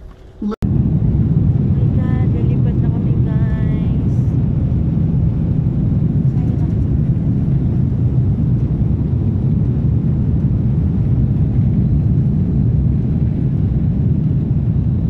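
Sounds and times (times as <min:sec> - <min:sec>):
airliner engine rumble in cabin: 0:00.0 - 0:15.0.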